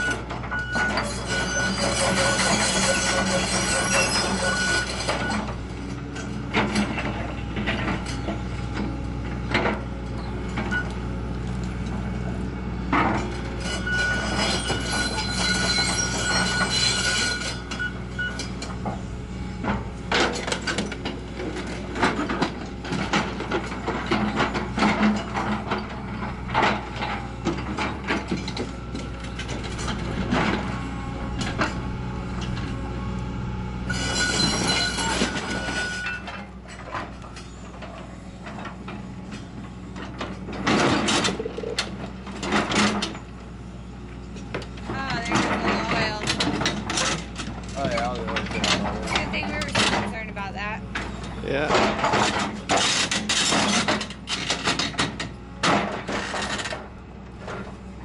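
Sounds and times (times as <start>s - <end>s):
steel creaking and screeching: 0.0s - 5.6s, 13.2s - 19.0s, 33.8s - 38.6s, 44.9s - 55.4s
metal clanks and knocks: 0.0s - 10.8s, 12.9s - 32.8s, 33.9s - 43.5s, 44.3s - 57.8s
excavator engine drone: 0.0s - 58.0s.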